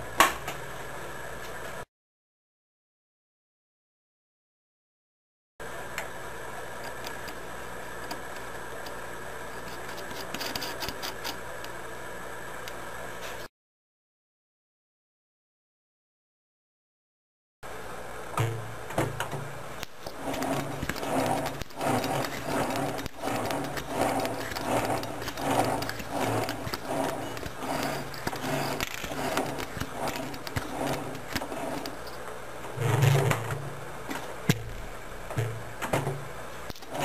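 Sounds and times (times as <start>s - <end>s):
machine running in cycles: 18.4s - 37.0s.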